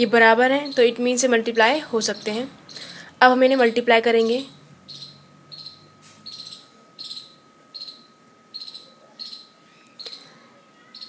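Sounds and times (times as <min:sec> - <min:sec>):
insect chirping: 0:00.0 - 0:03.8, 0:04.5 - 0:10.3.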